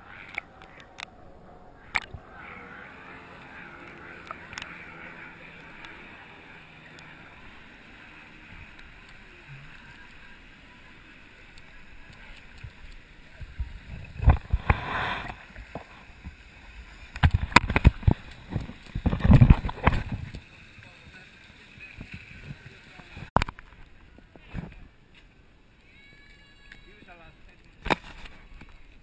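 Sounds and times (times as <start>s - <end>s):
water splashing: 0.0s - 24.8s
muffled underwater hiss: 1.8s - 25.0s.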